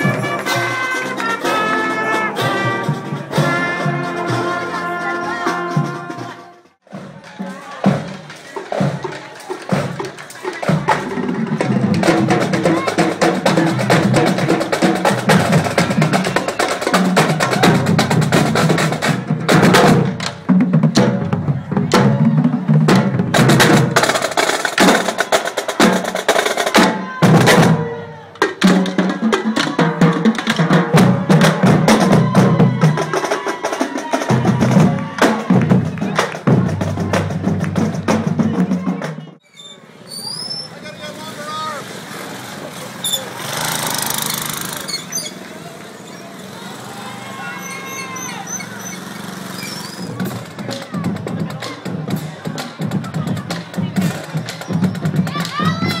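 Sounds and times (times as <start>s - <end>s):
bass drums: 0.0s - 33.5s, 34.1s - 39.4s, 50.0s - 56.0s
snare drums with rolls: 0.0s - 39.4s, 46.9s - 56.0s.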